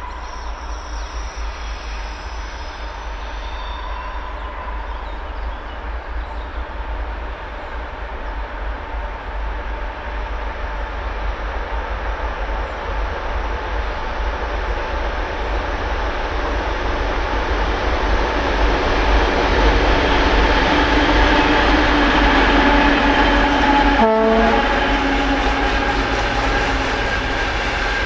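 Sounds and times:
diesel locomotive engine drone: 0.0 - 28.0.

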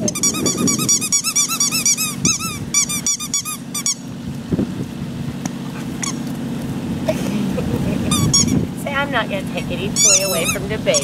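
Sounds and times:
squeaky dog toy squeaking: 0.0 - 4.0, 8.1 - 8.6, 10.0 - 11.0.

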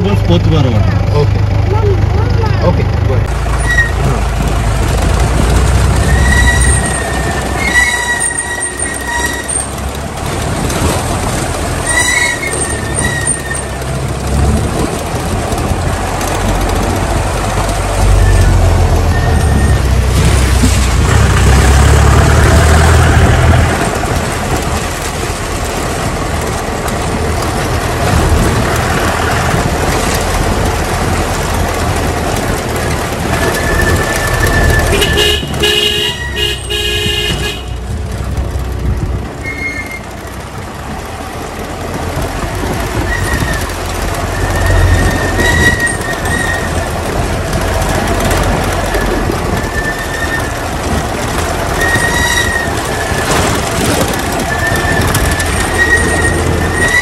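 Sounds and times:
vehicle engine and road rumble: 0.0 - 57.0
vehicle horn: 34.8 - 37.8.

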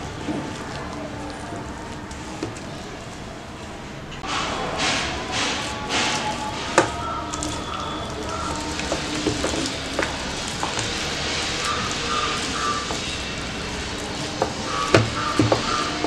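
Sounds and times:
spoon stirring thick batter: 4.3 - 16.0.

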